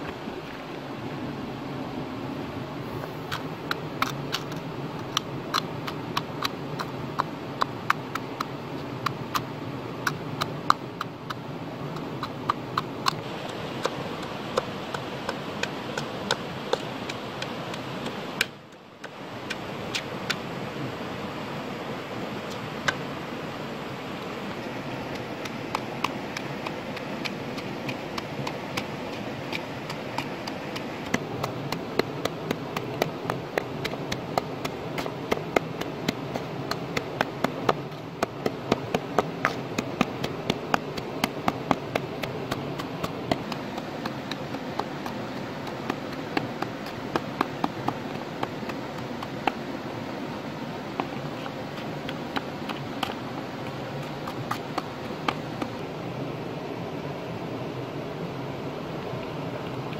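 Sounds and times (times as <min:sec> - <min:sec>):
steady background hiss: 0:00.0 - 0:59.9
pestle pounding in a bowl: 0:25.1 - 0:49.7, 0:50.9 - 0:55.8.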